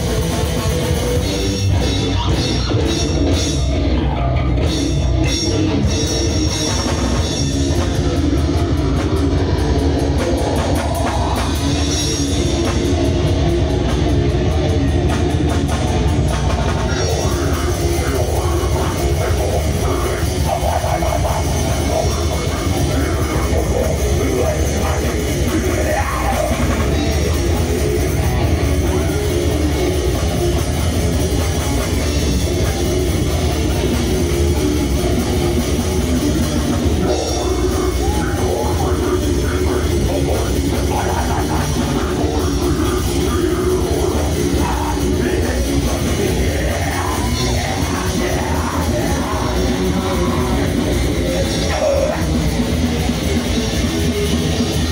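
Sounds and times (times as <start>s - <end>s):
bass guitar: 0.0s - 54.9s
distorted electric guitar: 0.0s - 54.9s
drum kit: 0.0s - 54.9s
person singing into microphone: 16.7s - 30.4s, 35.6s - 54.9s.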